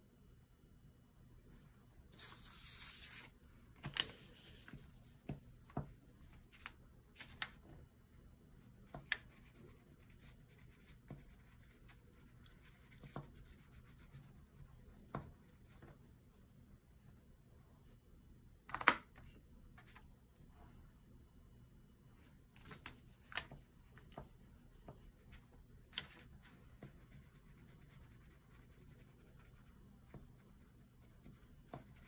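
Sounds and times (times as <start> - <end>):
oil pastel rubbing on paper: 2.2 - 3.3
paper rustle: 2.2 - 4.8.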